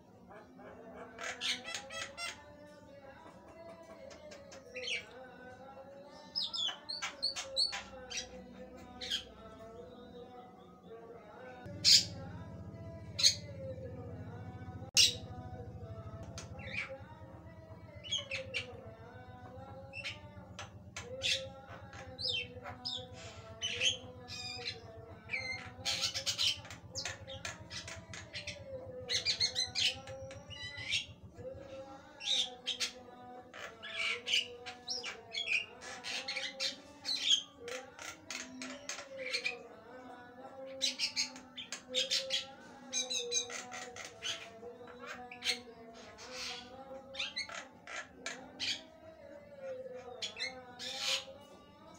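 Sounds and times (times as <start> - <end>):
low hum: 11.7 - 31.9.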